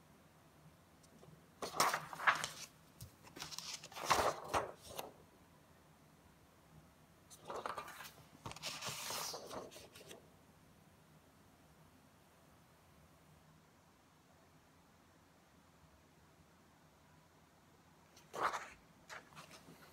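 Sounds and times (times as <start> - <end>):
paper cards rustling and sliding: 1.6 - 5.2, 7.3 - 10.2, 18.2 - 19.9.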